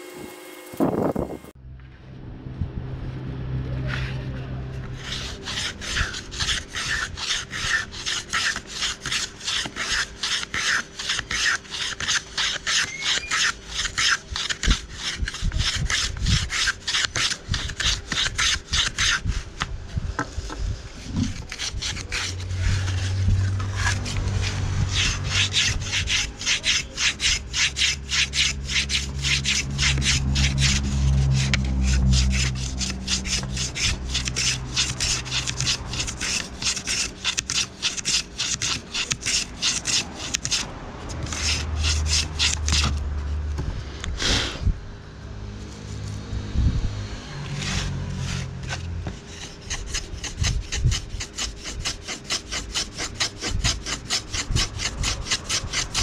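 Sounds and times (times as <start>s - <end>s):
low hum: 0.0s - 9.5s, 19.3s - 37.2s
wood being filed by hand: 3.9s - 44.6s, 47.3s - 56.0s.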